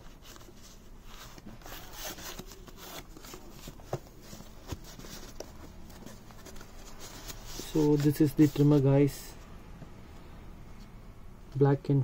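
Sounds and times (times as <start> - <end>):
cardboard and foam rustling: 0.0 - 9.4.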